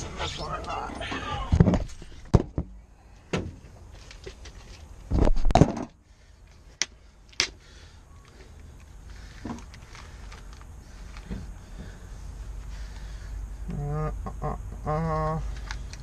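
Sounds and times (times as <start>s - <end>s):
sharp plastic clicks: 15.5s - 16.0s.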